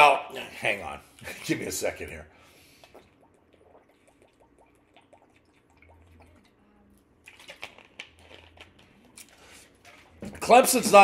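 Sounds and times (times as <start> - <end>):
swallowing gulps: 2.8 - 6.6
plastic bottle crinkling: 7.3 - 11.0.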